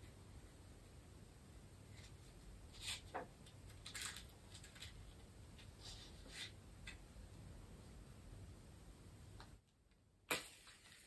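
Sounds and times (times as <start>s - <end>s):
scratching and rustling of objects: 1.8s - 7.0s.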